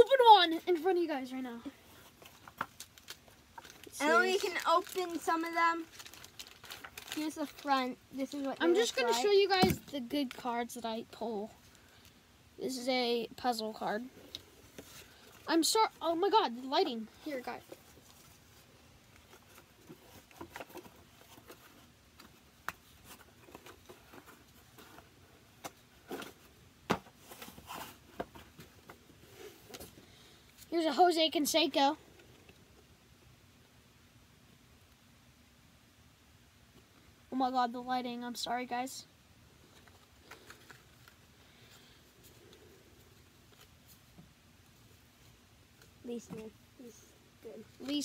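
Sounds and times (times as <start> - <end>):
faint rustling of cards: 0.0 - 33.4, 36.6 - 48.0
cards rustling and flicking: 2.0 - 10.6.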